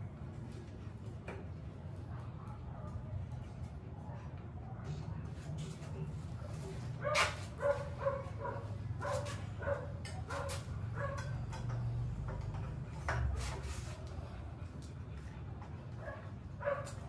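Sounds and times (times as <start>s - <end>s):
dog barking: 7.0s - 11.4s, 16.0s - 17.0s.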